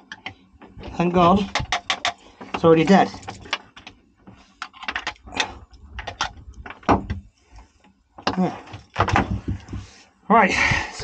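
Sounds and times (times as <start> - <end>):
plastic clicks and knocks: 1.4 - 2.6, 4.6 - 7.2.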